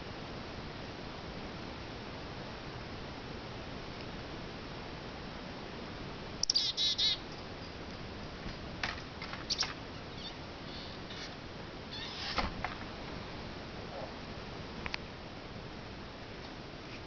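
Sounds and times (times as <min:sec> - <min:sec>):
chickadee call: 0:06.4 - 0:07.2
short high bird chirps: 0:06.4 - 0:07.2, 0:09.5 - 0:11.2.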